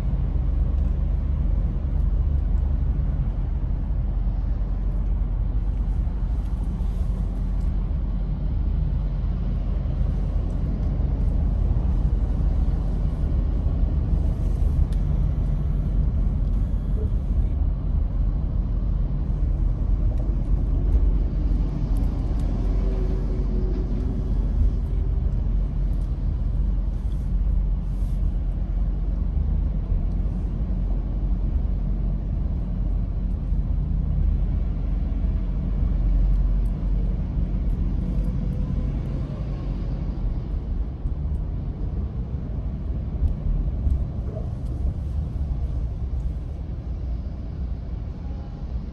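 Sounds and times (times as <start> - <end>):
road rumble inside car: 0.0 - 48.9.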